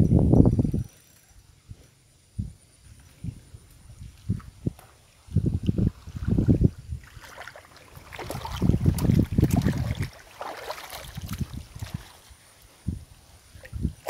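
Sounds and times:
fish splashing in water: 7.0s - 12.3s.

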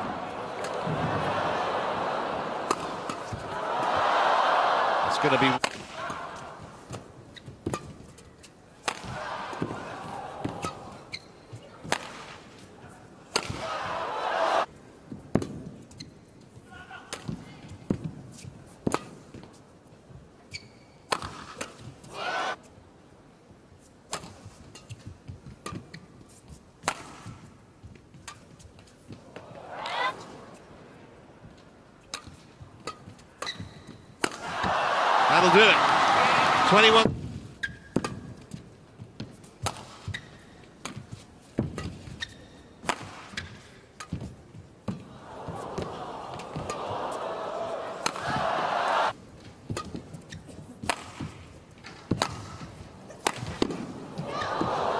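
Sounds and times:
background noise in hall: 0.0s - 54.9s
racket smacking shuttlecock: 0.1s - 1.0s, 2.5s - 4.0s, 5.6s - 6.2s, 6.8s - 9.8s, 10.4s - 12.4s, 13.3s - 13.7s, 20.5s - 21.9s, 24.1s - 29.2s, 32.0s - 34.8s, 39.2s - 46.9s, 47.7s - 54.6s
shoe squeaks on court: 11.1s - 11.6s, 20.5s - 21.0s, 40.1s - 40.5s.

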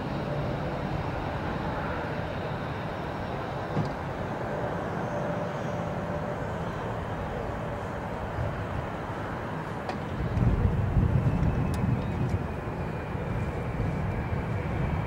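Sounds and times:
jet engines roaring: 0.0s - 15.0s.

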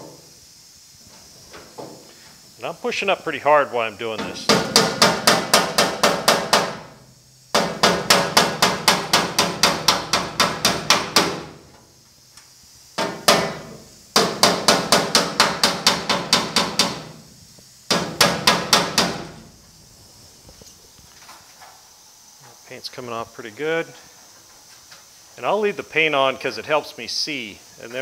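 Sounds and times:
hammer tapping on sheet metal: 4.2s - 6.8s, 7.5s - 11.5s, 13.0s - 17.1s, 17.9s - 19.3s.

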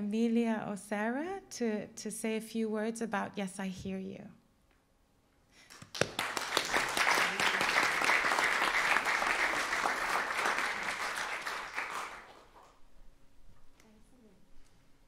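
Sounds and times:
audience applauding: 5.7s - 12.8s.

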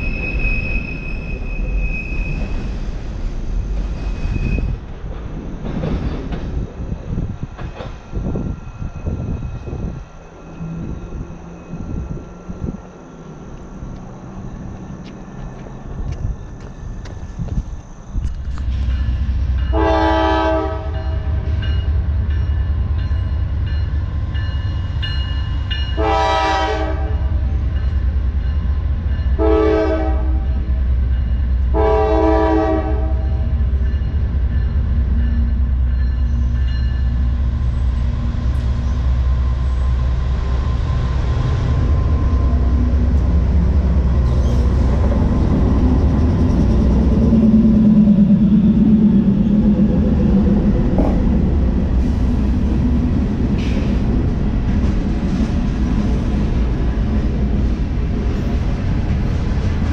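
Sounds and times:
deep rumble of train: 0.0s - 59.9s
locomotive horn: 19.7s - 21.6s, 26.0s - 27.4s, 29.4s - 30.6s, 31.7s - 33.5s.

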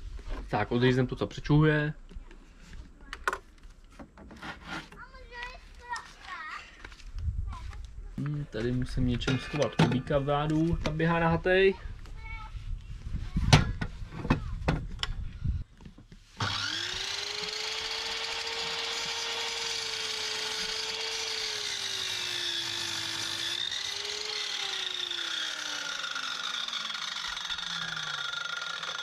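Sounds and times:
mitre saw cutting timber: 16.4s - 29.0s.

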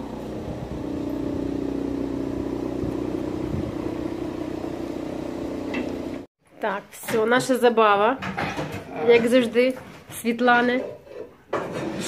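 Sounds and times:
steady motor hum: 0.0s - 6.3s.

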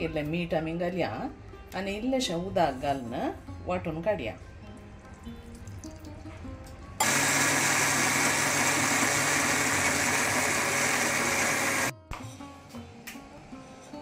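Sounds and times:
mixer grinder motor grinding: 7.0s - 11.9s.

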